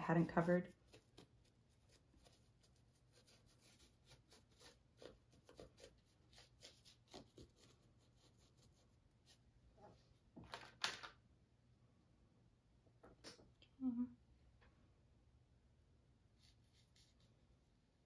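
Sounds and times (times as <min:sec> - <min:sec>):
paintbrush dabbing on canvas: 0:00.0 - 0:09.5, 0:16.3 - 0:17.7.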